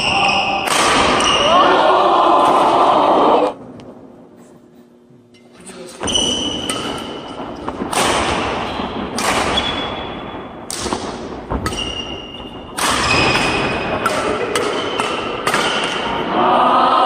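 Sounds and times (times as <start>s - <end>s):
shuttlecock hit by rackets: 7.8s - 9.9s, 12.8s - 16.1s.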